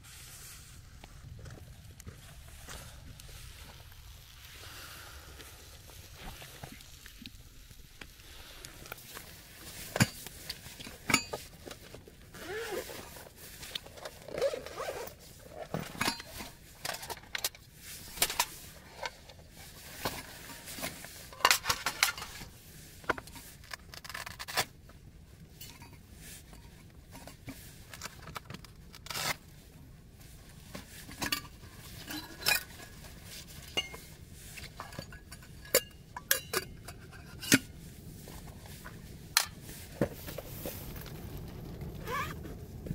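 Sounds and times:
zipper: 0:12.3 - 0:13.1, 0:14.3 - 0:15.2, 0:42.0 - 0:42.4
metal cookware clinking: 0:35.7 - 0:36.8.

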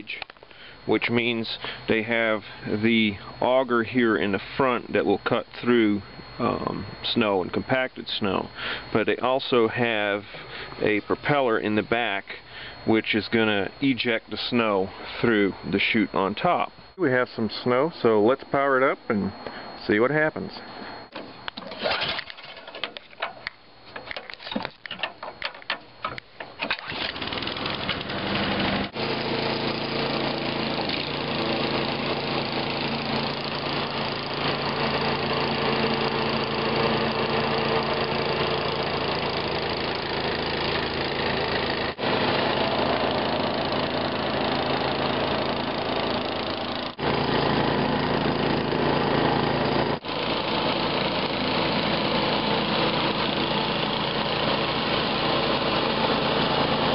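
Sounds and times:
snowblower engine starting: 0:21.6 - 0:23.0, 0:26.5 - 0:56.9
snowblower engine running: 0:26.6 - 0:56.9.

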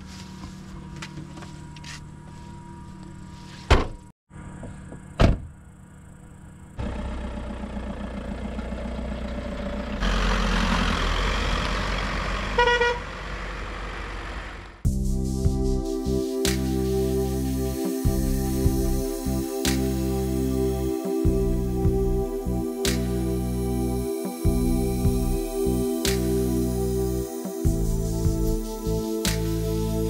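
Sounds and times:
car engine running: 0:04.3 - 0:14.8
car door slamming: 0:05.2 - 0:05.5
car tailgate slamming: 0:05.2 - 0:05.5
road noise: 0:06.1 - 0:14.9
car horn toot: 0:12.6 - 0:13.1.

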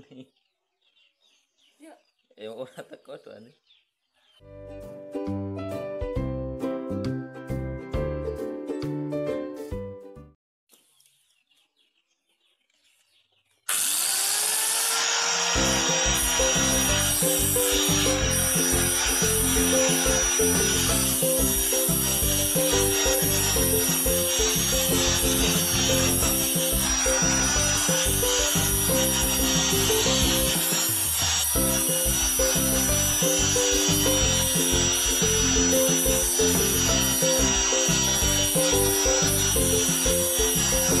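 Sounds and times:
background music: 0:04.4 - 0:10.4, 0:15.6 - 0:41.0
angle grinder whining: 0:13.7 - 0:41.0
nail grinding on abrasive disc: 0:13.7 - 0:41.0.

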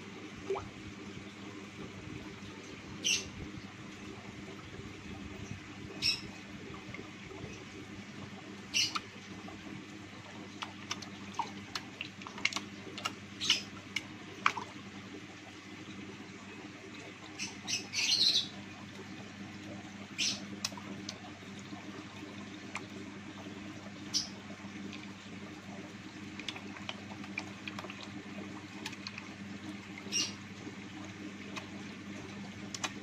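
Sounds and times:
steady low hum: 0:00.0 - 0:33.0
water drips and bubble plops: 0:00.3 - 0:02.8, 0:03.4 - 0:33.0
water splashing: 0:10.2 - 0:14.9, 0:24.1 - 0:33.0.

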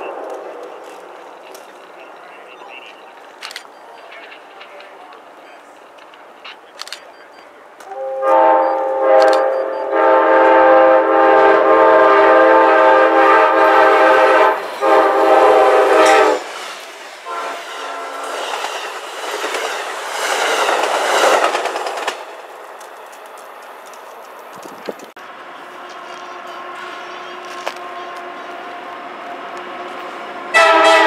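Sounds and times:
train air horn: 0:07.9 - 0:16.5, 0:17.2 - 0:18.6, 0:30.5 - 0:31.0
train wheels clattering on rails: 0:13.7 - 0:25.2.

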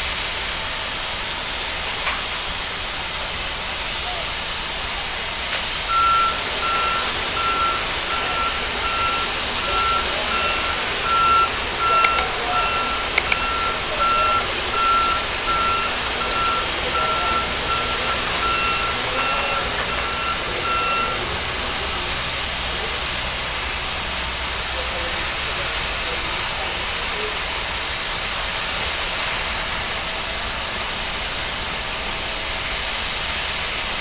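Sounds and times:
vehicle backup alarm beeping: 0:05.9 - 0:21.8
sharp clicks: 0:12.0 - 0:12.3, 0:13.2 - 0:13.5.

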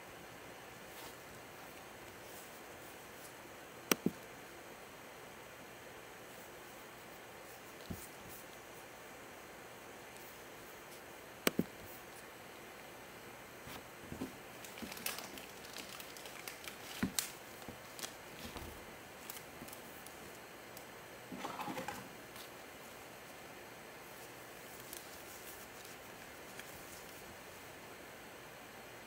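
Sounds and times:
plastic rustling: 0:13.7 - 0:20.4, 0:24.1 - 0:27.3.

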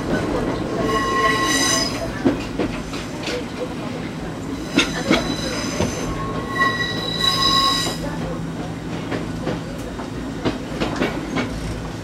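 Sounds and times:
train running noise: 0:00.0 - 0:12.0
train wheels squealing: 0:00.6 - 0:02.4, 0:04.6 - 0:08.2.

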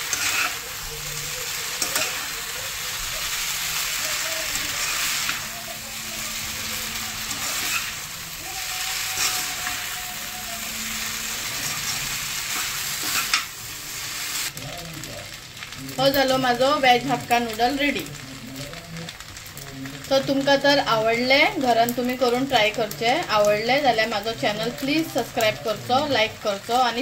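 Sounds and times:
metal utensils scraping a pan: 0:00.0 - 0:08.3, 0:08.9 - 0:13.6
noodles sizzling in a wok: 0:00.0 - 0:27.0.

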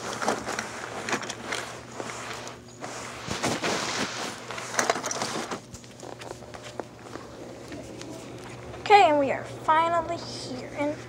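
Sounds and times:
rustling: 0:00.0 - 0:08.6.

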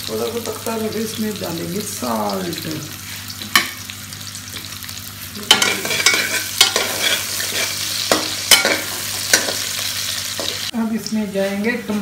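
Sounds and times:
food sizzling in hot oil: 0:00.0 - 0:12.0
spatula knocking and scraping pan: 0:05.5 - 0:09.7.

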